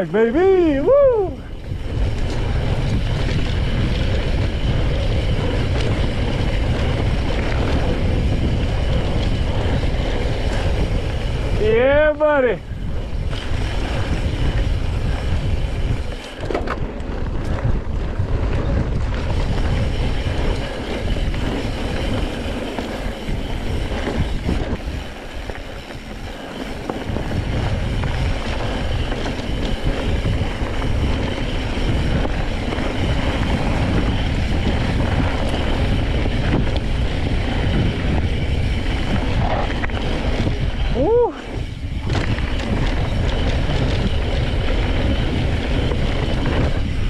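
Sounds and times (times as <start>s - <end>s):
mountain bike rolling on dirt: 0.0s - 47.0s
wind buffeting the microphone: 0.0s - 47.0s.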